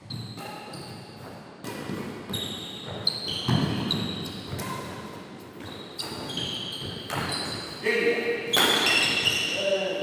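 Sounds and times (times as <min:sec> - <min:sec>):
shoes squeaking on court: 0:00.0 - 0:09.7
racquet hitting shuttlecock: 0:08.5 - 0:09.2.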